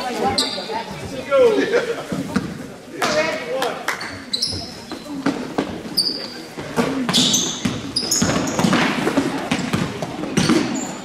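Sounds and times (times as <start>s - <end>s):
players' voices: 0.0s - 11.0s
sneaker squeaks: 0.2s - 1.0s, 3.9s - 11.0s
basketball bouncing on wood floor: 7.0s - 10.8s.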